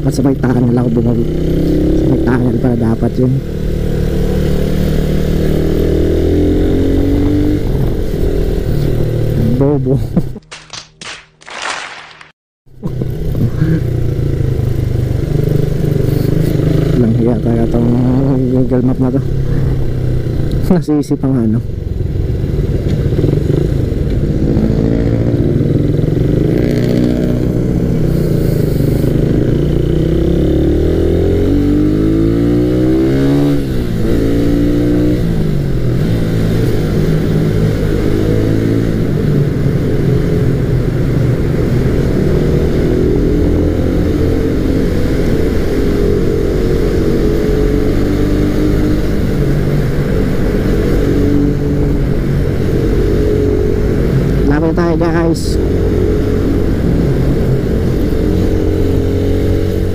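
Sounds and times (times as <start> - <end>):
motorcycle engine accelerating: 0.0 - 10.6, 12.7 - 59.9.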